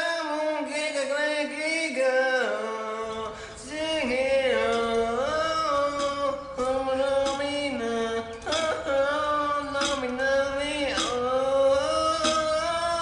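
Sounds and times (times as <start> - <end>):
person singing long notes: 2.6 - 13.0.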